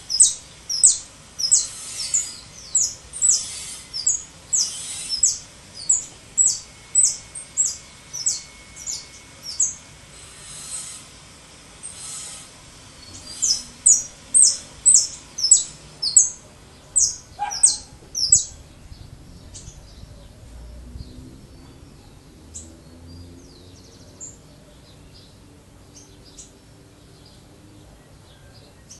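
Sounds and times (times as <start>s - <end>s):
soft bird chirps: 0.0s - 9.8s, 13.0s - 28.9s
finch singing sharp notes: 0.0s - 11.0s, 11.8s - 20.2s.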